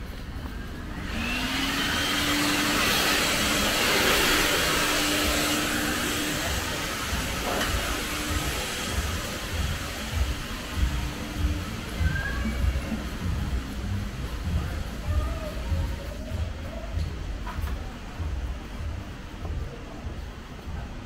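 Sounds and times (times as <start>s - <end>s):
machine motor humming: 0.7s - 15.8s
loud rushing hiss: 0.8s - 16.4s.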